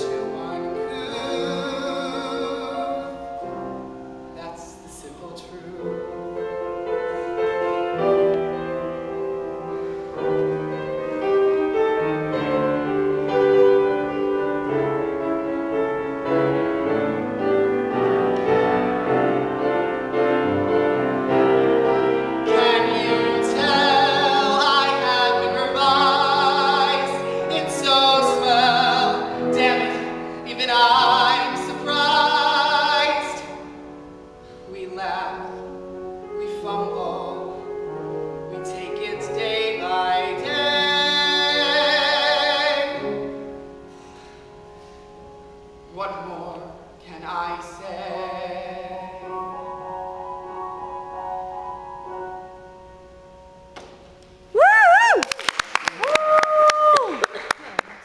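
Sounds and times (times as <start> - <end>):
man singing with vibrato: 0.0 - 3.7, 22.4 - 33.6, 38.5 - 43.4
grand piano playing: 0.0 - 54.7.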